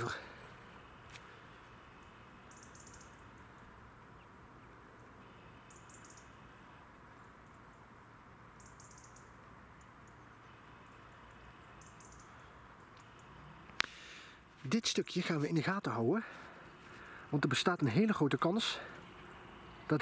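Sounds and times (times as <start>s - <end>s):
bird calling high-pitched notes: 1.9s - 3.6s, 5.2s - 6.8s, 8.6s - 9.4s, 10.0s - 13.4s.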